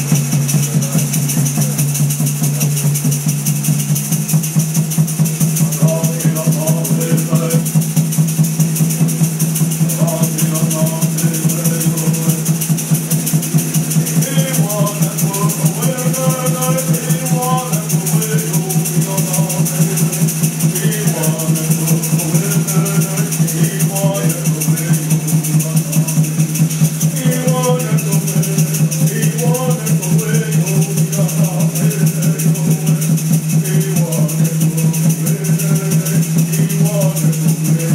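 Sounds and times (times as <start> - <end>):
voices singing: 0.0 - 3.1, 5.0 - 37.9
frame drum beating: 0.0 - 37.9
rattle shaking: 0.0 - 37.9.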